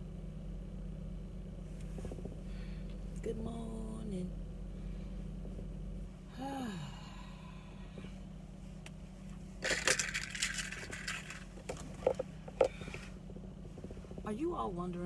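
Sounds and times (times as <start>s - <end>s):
steady low hum: 0.0s - 15.0s
rustling and scraping in car: 1.6s - 3.3s, 7.9s - 15.0s
short falling hum of voice: 6.3s - 7.8s
sharp clicks and knocks: 9.6s - 14.3s.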